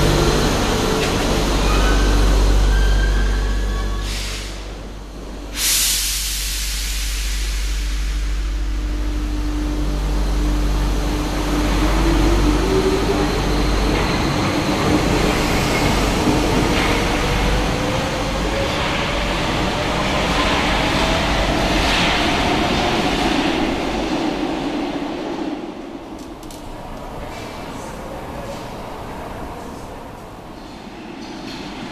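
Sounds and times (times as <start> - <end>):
train running rumble: 0.0 - 31.9.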